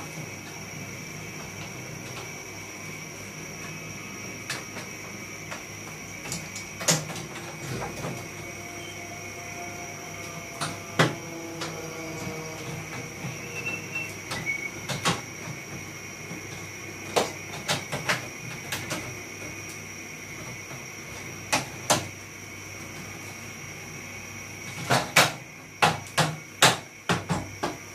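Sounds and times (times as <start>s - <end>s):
steady high tone: 8.3s - 14.8s.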